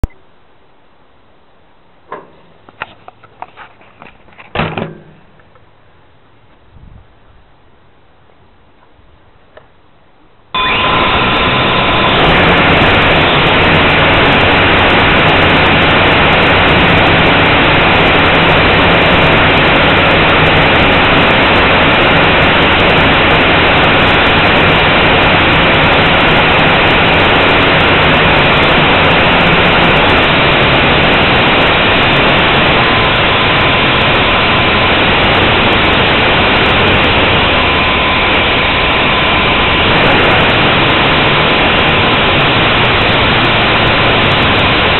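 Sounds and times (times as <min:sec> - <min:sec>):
drone motors humming: 0:10.6 - 0:44.9.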